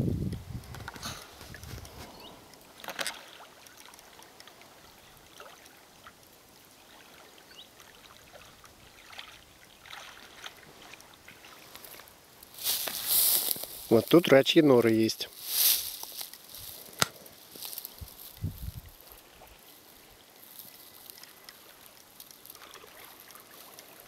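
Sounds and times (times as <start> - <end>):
soft rustles: 0.6 - 2.4, 11.5 - 14.4, 15.2 - 24.0
light water splashes and trickles: 1.2 - 24.0.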